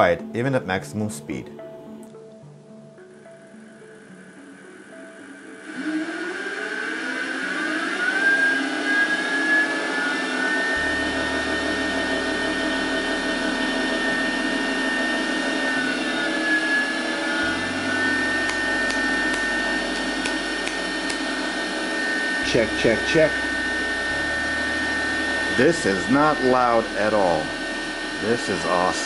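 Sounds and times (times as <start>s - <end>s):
milling machine motor whine: 3.0s - 29.0s.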